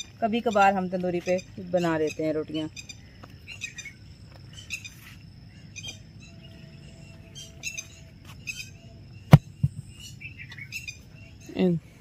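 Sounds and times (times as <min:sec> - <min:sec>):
birds chirping: 0:00.0 - 0:12.0
dull thump of dough pressed: 0:09.3 - 0:09.9.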